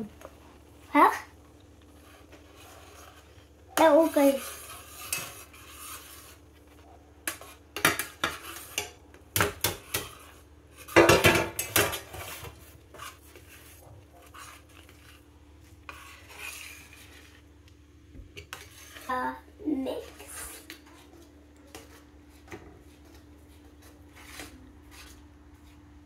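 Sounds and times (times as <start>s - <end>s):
metal spoon scraping steel pan: 2.0s - 6.4s, 7.2s - 15.2s, 15.8s - 17.4s, 18.4s - 19.2s, 20.0s - 20.7s.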